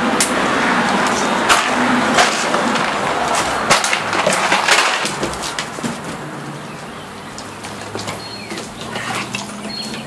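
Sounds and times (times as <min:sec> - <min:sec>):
plastic bottle scraping over boards: 0:00.9 - 0:06.3, 0:07.7 - 0:10.0.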